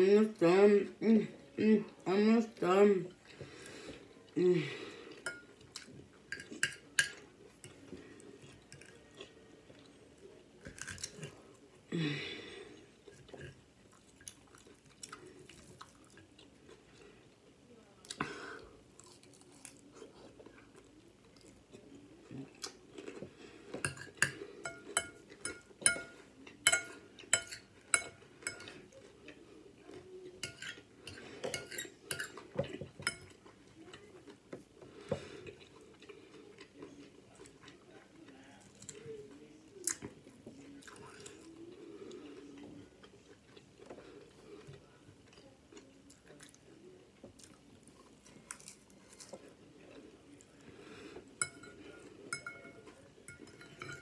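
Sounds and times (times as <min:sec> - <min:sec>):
cutlery clinking on dish: 0:05.2 - 0:05.6, 0:06.3 - 0:07.8, 0:23.8 - 0:28.8, 0:30.4 - 0:33.5, 0:51.4 - 0:54.0
chewing crispy food: 0:07.2 - 0:11.7, 0:12.5 - 0:24.6, 0:32.2 - 0:51.3.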